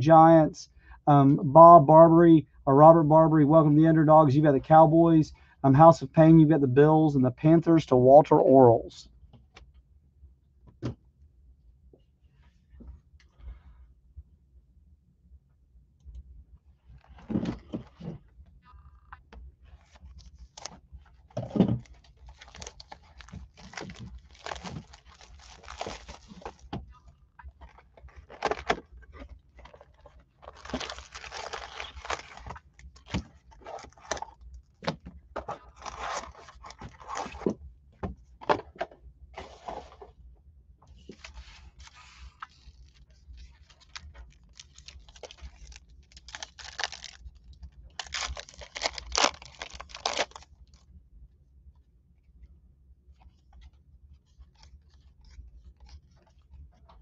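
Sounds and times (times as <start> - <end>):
foil wrappers crinkling and tearing: 21.4 - 26.7, 27.6 - 34.4, 35.7 - 37.4, 41.8 - 50.8.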